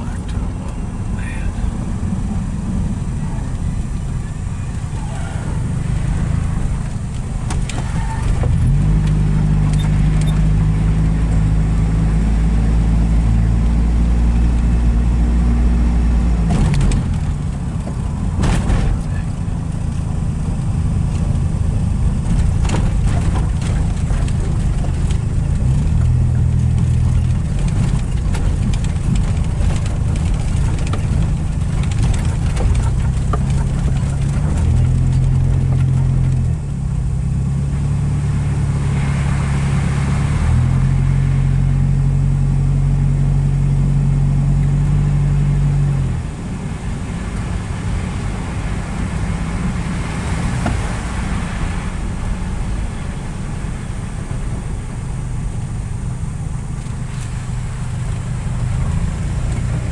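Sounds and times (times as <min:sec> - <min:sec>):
road noise inside vehicle: 0:00.0 - 0:59.9
vehicle engine hum: 0:00.0 - 0:59.9
knocks and rattles from bumps: 0:06.5 - 0:10.7, 0:16.4 - 0:36.8.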